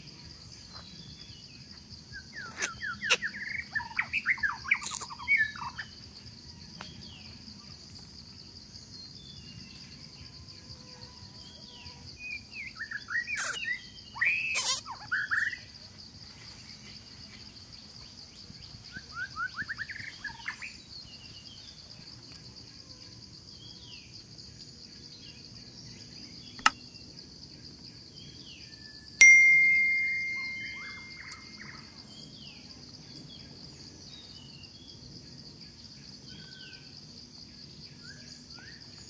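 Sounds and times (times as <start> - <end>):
insects droning: 0.0 - 39.0
bird chirps: 2.1 - 6.0, 11.8 - 15.6, 28.8 - 32.3
sharp click: 26.6 - 26.8
bell-like ring: 29.2 - 31.8.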